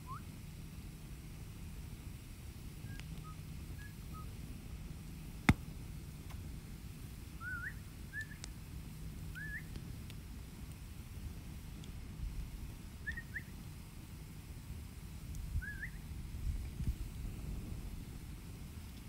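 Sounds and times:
campfire rumble and crackles: 0.0s - 19.0s
high squeaky steam whistles: 7.4s - 8.4s.

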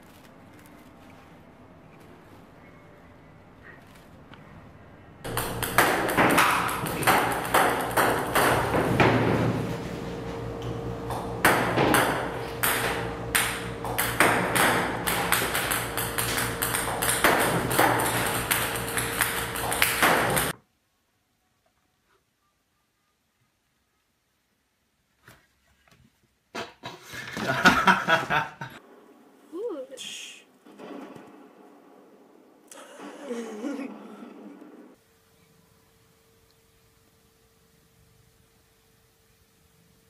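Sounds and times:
steady machine hum: 4.8s - 20.6s
balls clicking on table: 5.3s - 9.0s, 11.5s - 20.5s.

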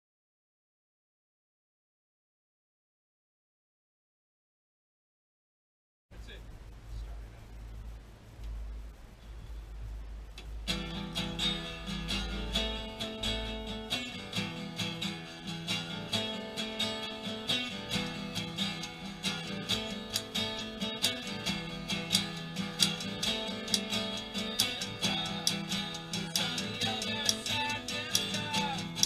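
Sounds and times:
acoustic guitar strumming: 10.6s - 29.0s.

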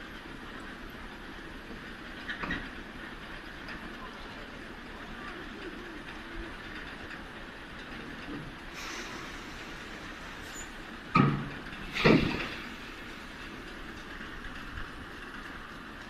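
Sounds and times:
machine rattle and hiss: 6.6s - 16.0s
loud clunks: 11.1s - 12.7s.

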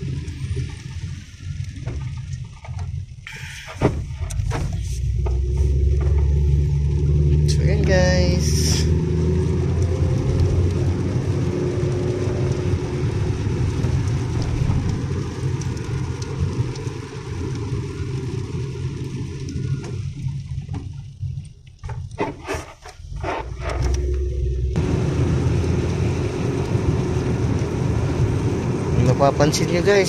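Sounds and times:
car engine and tyre rumble: 0.0s - 30.0s
tyres hissing on wet road: 4.8s - 20.1s, 23.3s - 30.0s.

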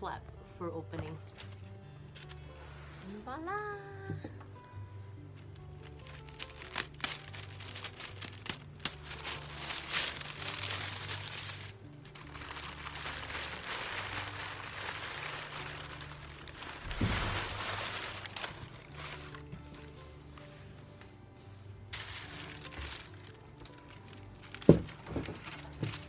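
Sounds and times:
tissue paper rustling: 5.4s - 21.2s, 21.9s - 26.0s
cloth bag rustling: 5.8s - 20.8s, 21.9s - 26.0s.

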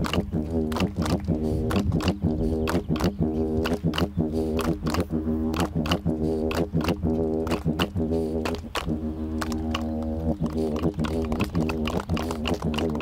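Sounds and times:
didgeridoo drone: 0.0s - 13.0s.

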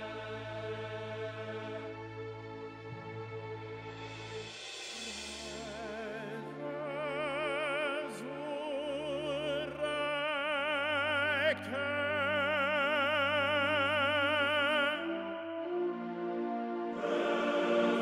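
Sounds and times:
operatic solo singing: 5.5s - 18.0s.

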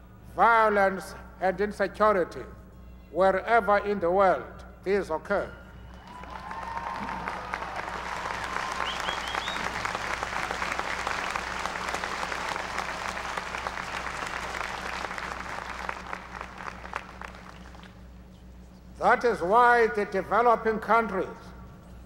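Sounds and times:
crowd applauding: 5.9s - 18.0s.

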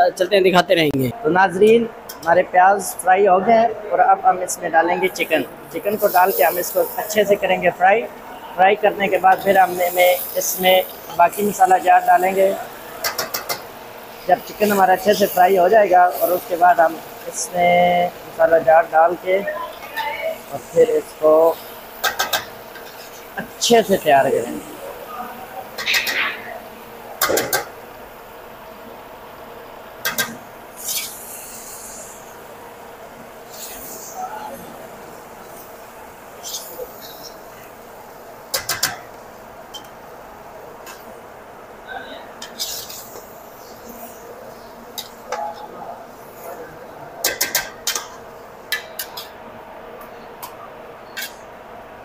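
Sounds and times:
steady background hum: 0.0s - 52.0s
chicken frying: 5.1s - 50.5s
utensil scraping pot: 42.4s - 43.2s.

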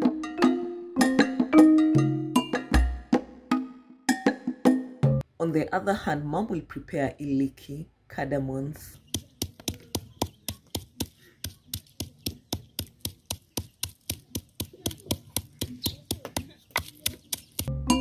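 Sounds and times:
pestle pounding in wooden mortar: 9.0s - 17.7s.

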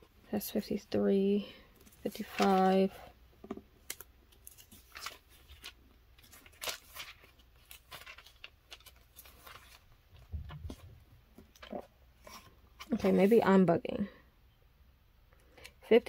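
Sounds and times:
paper pages flipping: 1.8s - 3.0s, 3.8s - 13.4s.

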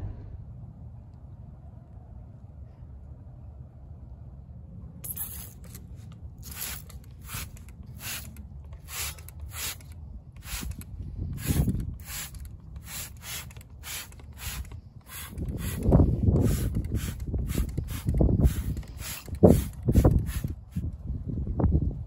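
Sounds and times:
spray bottle squirting: 5.0s - 20.8s
wind rumbling on microphone: 6.5s - 22.0s.

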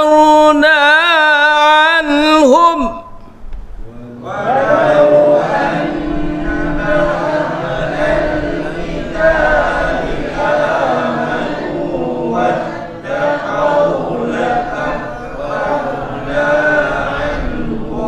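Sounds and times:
congregation chanting in unison: 3.8s - 18.0s.

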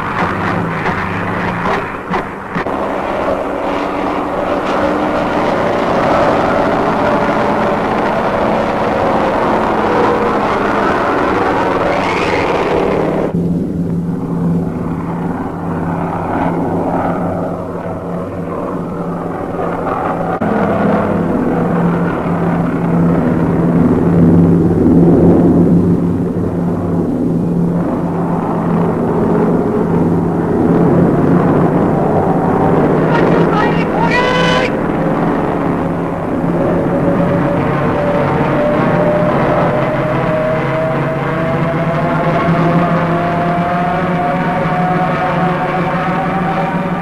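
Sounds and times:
propeller plane engines droning: 0.0s - 47.0s.

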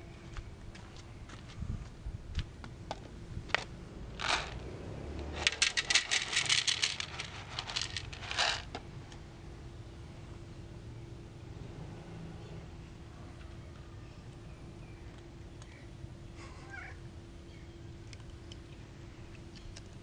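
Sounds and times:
kibble rattling onto metal tray: 4.2s - 4.6s, 5.4s - 8.8s.

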